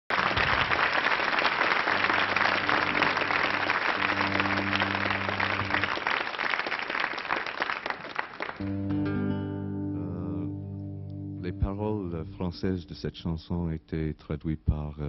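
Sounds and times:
audience applauding: 0.1s - 8.9s.

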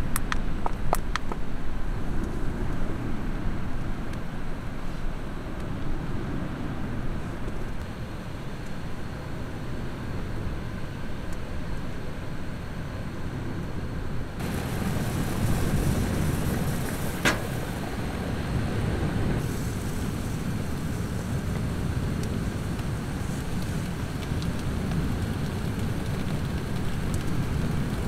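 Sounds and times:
rice steaming over burner: 14.4s - 28.0s
wind on microphone: 14.4s - 28.0s.

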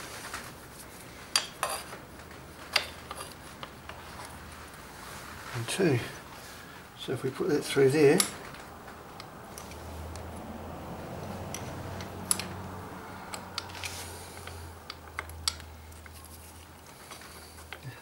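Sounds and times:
small metal clicks and taps: 11.5s - 12.5s, 13.3s - 16.2s.

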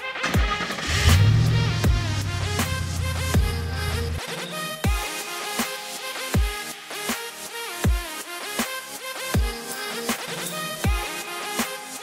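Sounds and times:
electronic music with heavy bass: 0.0s - 12.0s
deep falling bass hits: 0.8s - 4.3s.

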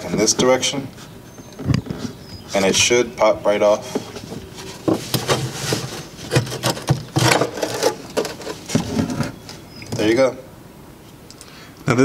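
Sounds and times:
hands rubbing and scraping plastic: 3.9s - 9.6s.

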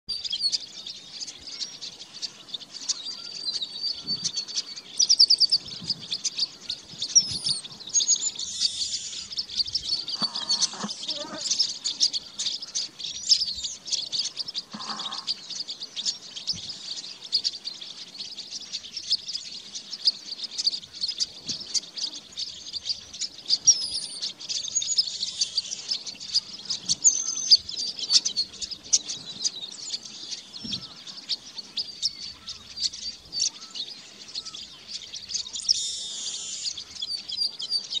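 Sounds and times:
blackbird singing buzzy phrase: 8.4s - 12.4s, 14.6s - 15.5s.

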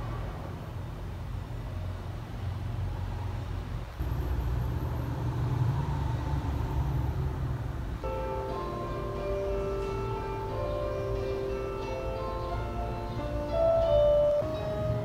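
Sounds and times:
plucked string music: 8.0s - 15.0s.

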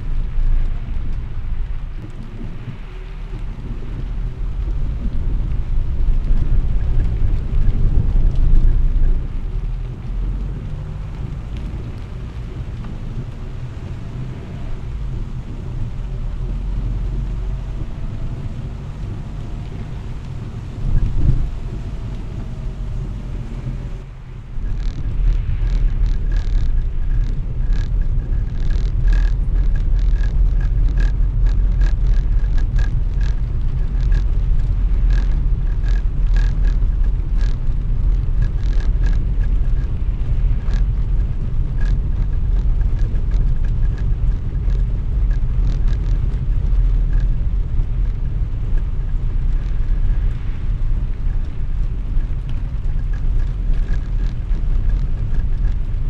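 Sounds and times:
car tyres rumbling on cobblestones: 0.0s - 56.0s
sharp ticks: 12.4s - 56.0s.

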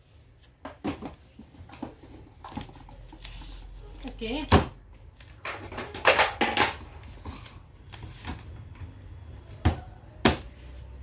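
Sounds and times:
plastic parts knocking and clicking: 5.4s - 6.8s.

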